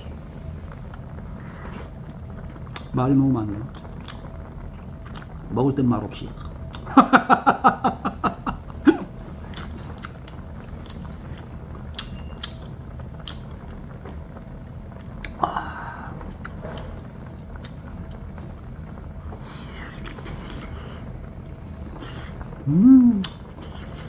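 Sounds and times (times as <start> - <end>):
chewing and mouth sounds: 3.7 - 5.4, 9.5 - 13.4.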